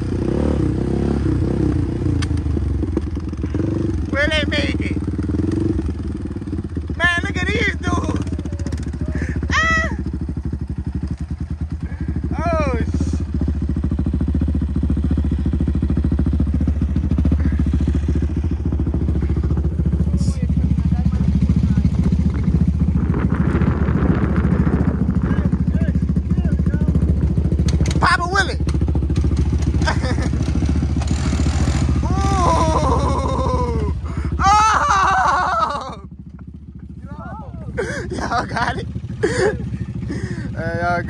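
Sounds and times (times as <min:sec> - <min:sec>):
atv engine idling: 0:00.0 - 0:41.0
person yelling: 0:07.0 - 0:10.1, 0:12.3 - 0:13.2, 0:32.0 - 0:36.0, 0:37.0 - 0:38.1.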